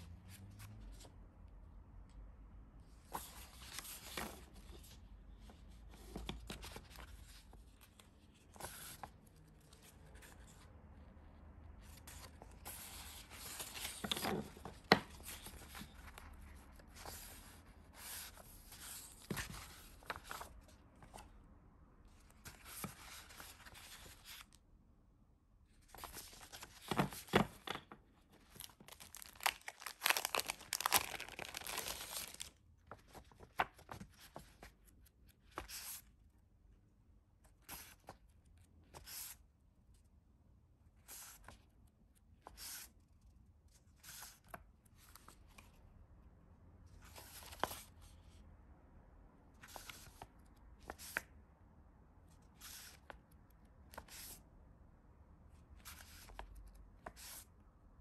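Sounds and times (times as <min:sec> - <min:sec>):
plastic and paper rustling: 0:12.0 - 0:21.3, 0:25.8 - 0:34.7.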